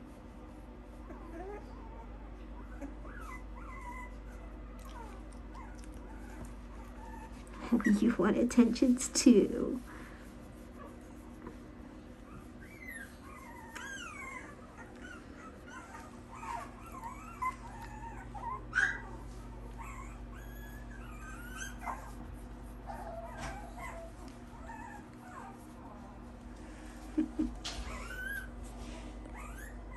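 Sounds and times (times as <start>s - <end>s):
dog whining: 1.0s - 8.1s, 12.3s - 22.3s, 22.9s - 26.2s, 27.2s - 29.9s
dog yelping: 12.3s - 19.2s, 19.8s - 22.2s, 27.8s - 28.6s.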